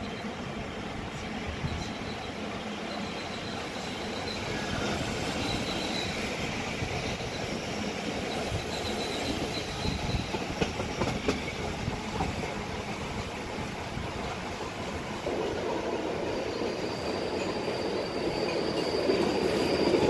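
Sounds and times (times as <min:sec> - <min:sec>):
rail joint clicks: 0:00.0 - 0:20.0
train rumbling on rails: 0:00.0 - 0:20.0
faint high wheel squeal: 0:01.2 - 0:12.9, 0:16.3 - 0:20.0.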